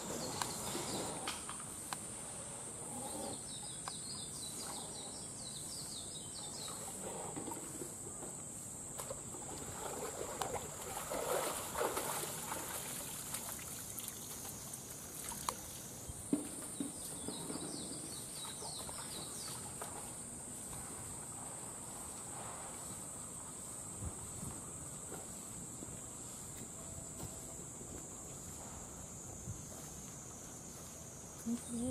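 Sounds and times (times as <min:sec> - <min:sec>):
water splashing and trickling: 0:08.9 - 0:20.3
high-pitched hiss: 0:20.3 - 0:31.9.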